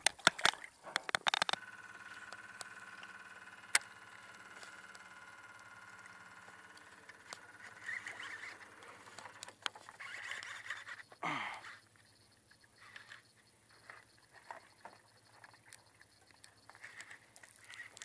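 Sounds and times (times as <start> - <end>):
fishing rod handling rustles: 0.0 - 1.6, 6.7 - 11.2
fishing reel spool whirring: 0.0 - 18.0
reel clicks: 0.0 - 18.0
electric trolling motor whine: 0.4 - 11.2.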